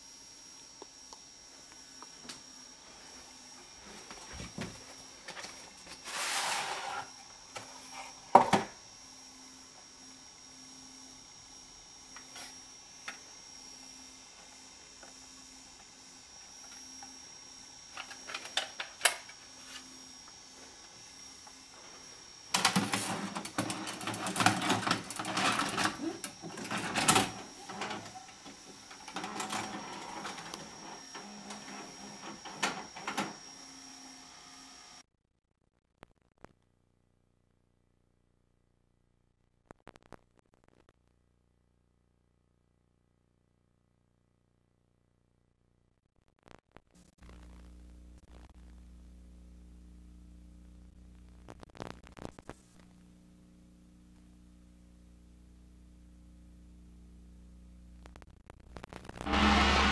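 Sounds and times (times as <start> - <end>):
faint high whine: 0.0 - 35.1, 47.2 - 51.6
tape hiss: 46.3 - 59.9
tape mechanism whirring: 59.2 - 59.9.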